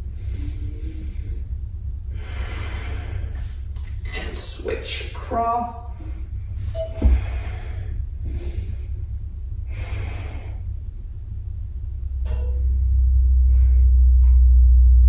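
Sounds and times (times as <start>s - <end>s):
person breathing slowly: 0.0s - 3.8s, 5.9s - 11.0s, 12.8s - 14.4s
steady low hum: 0.0s - 15.0s.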